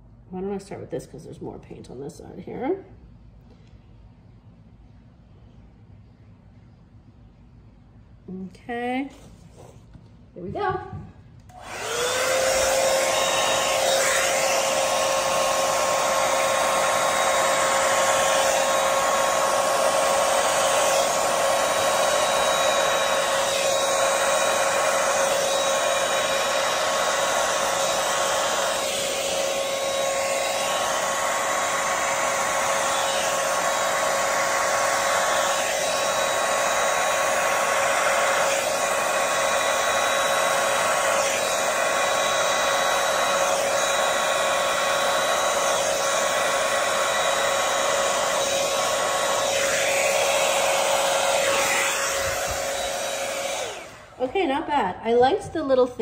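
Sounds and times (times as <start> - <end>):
hair dryer whine and air rush: 11.4 - 55.2.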